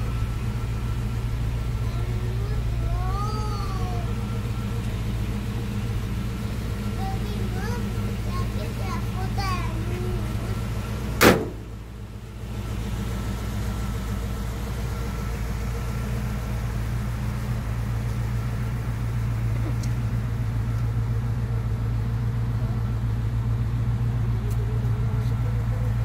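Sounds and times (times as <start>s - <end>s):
truck engine idling: 0.0s - 26.0s
car door slamming: 11.0s - 11.9s.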